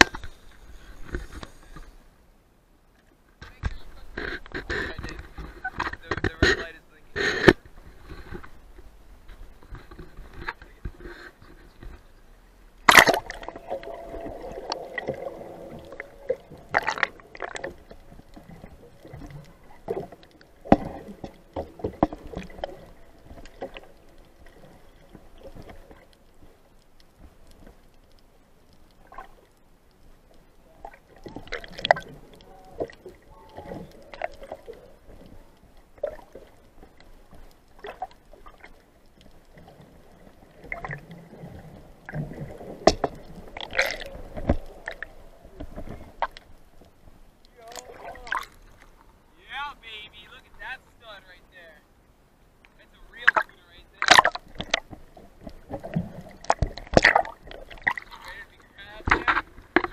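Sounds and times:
underwater knocks and clicks: 0.0s - 1.9s, 3.4s - 12.1s, 12.9s - 26.2s, 36.0s - 47.0s, 52.6s - 58.3s, 58.9s - 59.9s
camera splashing into water: 12.8s - 15.2s
muffled underwater gurgling: 13.1s - 20.1s, 47.5s - 48.6s.

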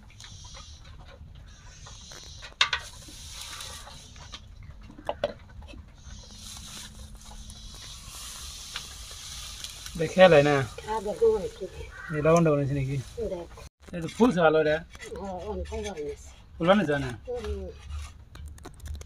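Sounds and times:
batter sizzling in a pan: 7.6s - 11.1s.

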